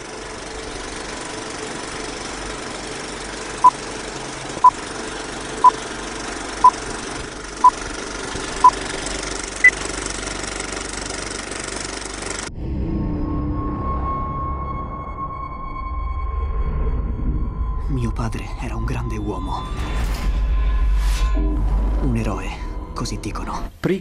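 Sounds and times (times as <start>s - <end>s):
film projector rattle: 0.0s - 12.5s.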